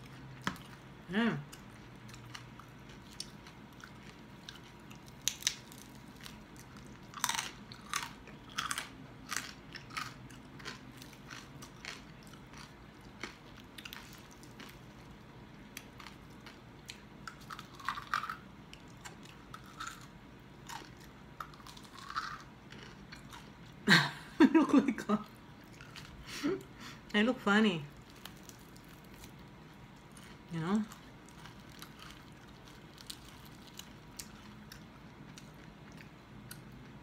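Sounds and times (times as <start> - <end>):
crispy skin crunching: 1.6 - 15.1, 27.9 - 36.6.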